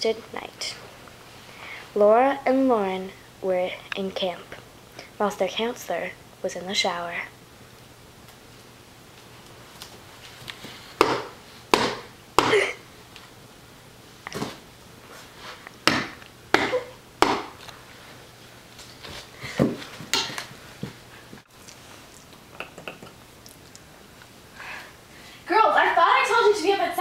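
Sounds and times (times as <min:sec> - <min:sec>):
sharp knocks: 0:11.0 - 0:12.6, 0:15.8 - 0:17.6.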